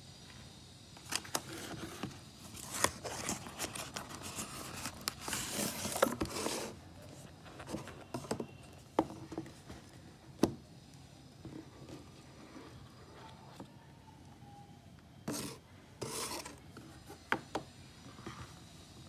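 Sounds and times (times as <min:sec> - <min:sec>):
cardboard box scraping and tearing: 0:01.5 - 0:06.8, 0:15.3 - 0:16.6.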